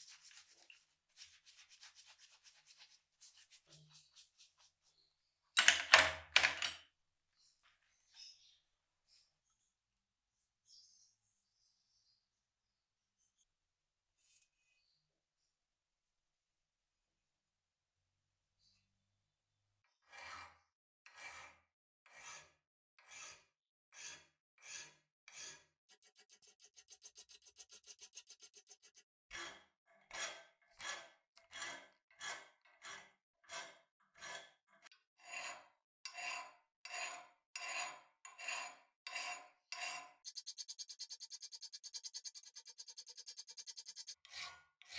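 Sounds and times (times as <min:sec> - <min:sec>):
file rasping on metal: 0:20.0 - 0:34.6, 0:35.2 - 0:44.9.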